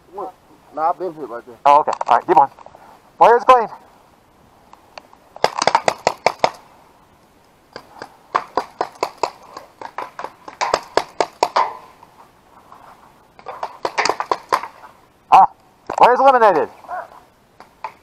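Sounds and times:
paintball markers firing: 5.4s - 6.6s, 7.8s - 11.8s, 13.4s - 14.8s.

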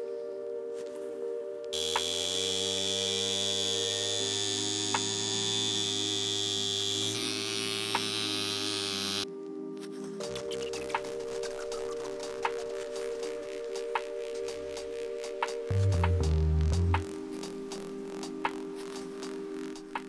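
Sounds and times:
soft background music: 0.0s - 20.0s
engraving tool buzzing: 1.8s - 9.2s.

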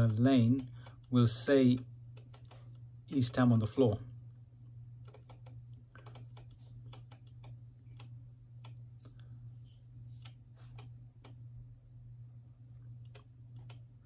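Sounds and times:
steady low hum: 0.0s - 14.0s
keyboard clicking: 5.0s - 8.8s.

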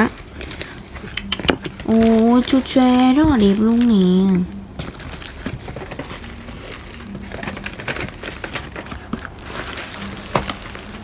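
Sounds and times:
plastic bags crinkling: 0.0s - 11.0s
cardboard flaps rustling: 4.8s - 11.0s.

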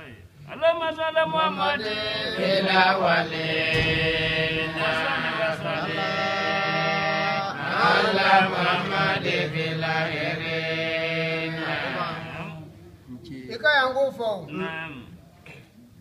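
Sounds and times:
person chanting recitation: 1.2s - 12.7s.

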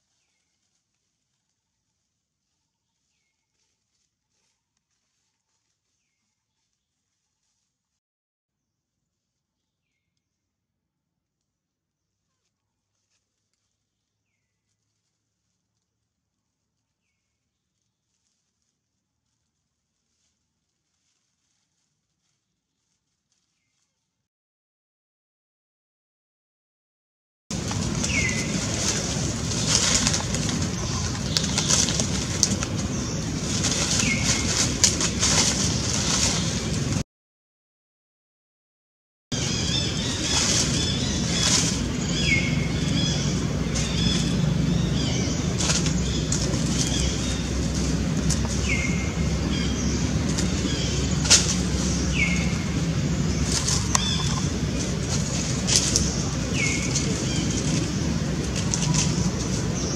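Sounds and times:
dry leaves rustling: 0.0s - 7.9s, 12.4s - 24.2s, 27.5s - 37.0s, 39.3s - 59.9s
steady low rumble: 27.5s - 37.0s, 39.3s - 59.9s.

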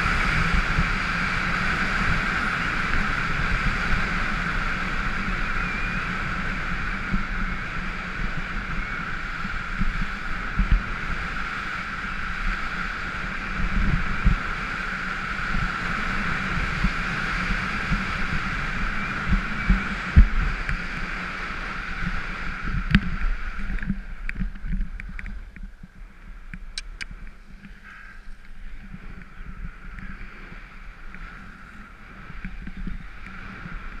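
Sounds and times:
skis sliding over snow: 0.0s - 34.0s
wind on microphone: 0.0s - 34.0s
sharp clicks: 26.5s - 27.8s.

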